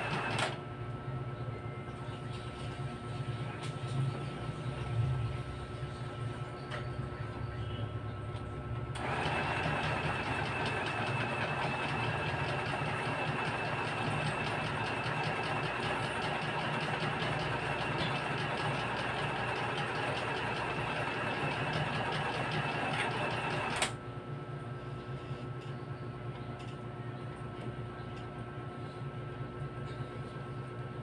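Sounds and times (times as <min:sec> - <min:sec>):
sewing machine running: 0:00.0 - 0:00.6, 0:09.0 - 0:23.9.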